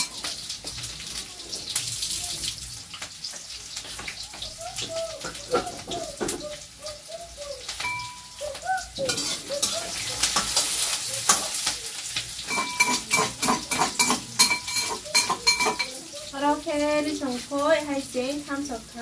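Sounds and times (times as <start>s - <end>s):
food sizzling in a pan: 0.0s - 19.0s
metal spatula scraping a pan: 9.1s - 16.2s.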